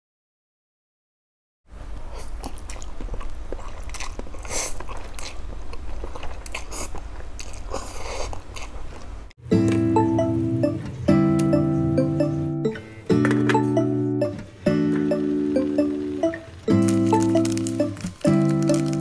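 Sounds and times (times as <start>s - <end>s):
wet chewing: 2.0s - 9.2s, 16.8s - 19.0s.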